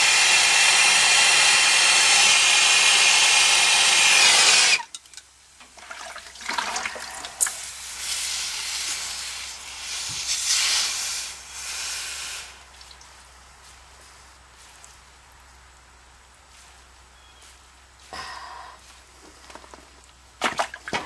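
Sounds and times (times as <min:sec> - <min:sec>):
hot metal hissing with steam: 0:07.4 - 0:12.7.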